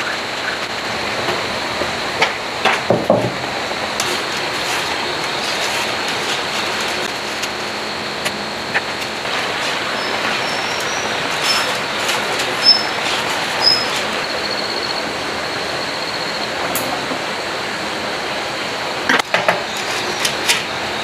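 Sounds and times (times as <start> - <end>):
hand-cranked winding machine whirring: 9.0 - 15.0
short high squeaks: 9.8 - 15.0.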